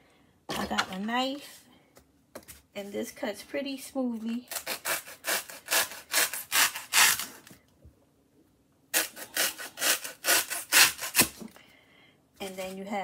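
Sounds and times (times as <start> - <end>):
knife sawing through foam: 4.5 - 7.3, 9.0 - 11.3.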